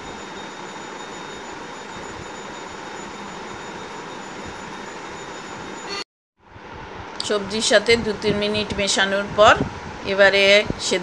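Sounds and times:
faint high whine: 0.0 - 7.3.

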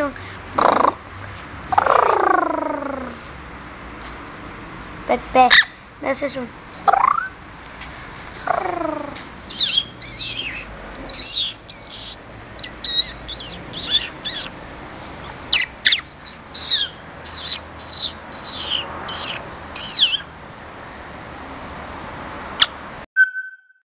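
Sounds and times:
parakeet chirping and squawking: 0.6 - 1.0, 5.4 - 5.8, 6.8 - 7.4, 8.4 - 20.4.

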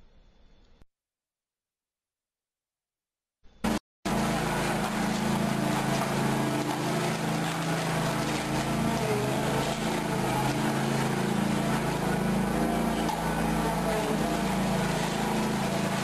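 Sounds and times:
machine engine humming: 3.6 - 16.0.

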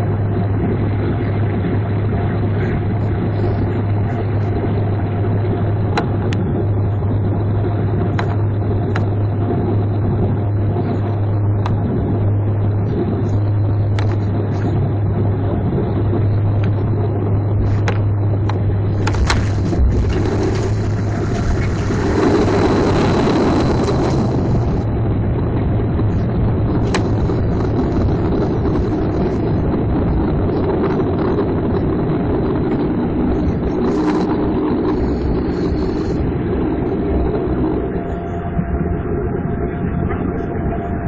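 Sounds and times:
airliner engine and rushing noise: 0.0 - 41.0.

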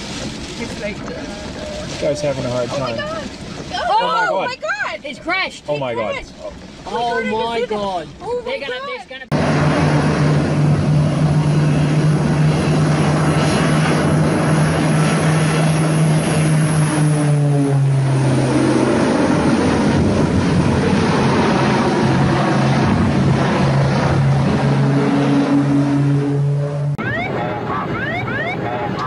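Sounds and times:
propeller plane engines droning: 6.1 - 29.0
wind noise on microphone: 9.4 - 26.7.

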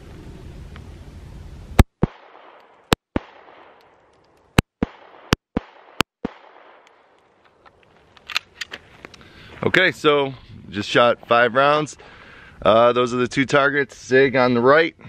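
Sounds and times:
gunshot echo: 1.8 - 3.9, 4.6 - 7.1
pistol shots: 1.9 - 4.0, 4.6 - 7.2.

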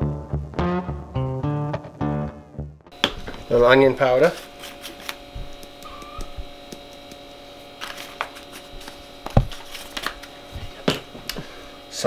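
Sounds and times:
steady electrical hum: 2.9 - 12.0.

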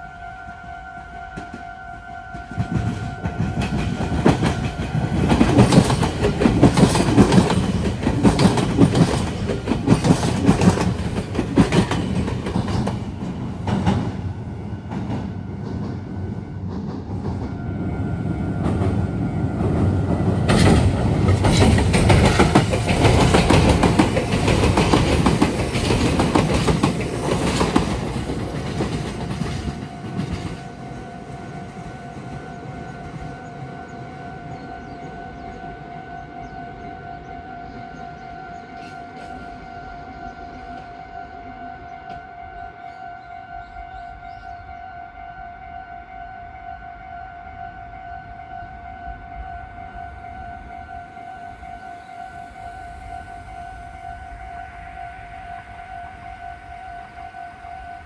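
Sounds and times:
train wheels clattering: 2.3 - 17.6, 18.4 - 31.0
level crossing warning bell: 17.8 - 58.0.

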